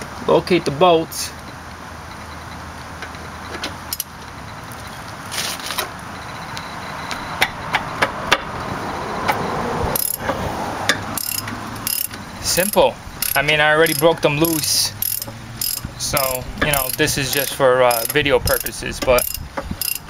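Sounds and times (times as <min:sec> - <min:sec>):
steady background noise: 0:00.0 - 0:20.0
metallic clinks of hand tools: 0:11.2 - 0:20.0.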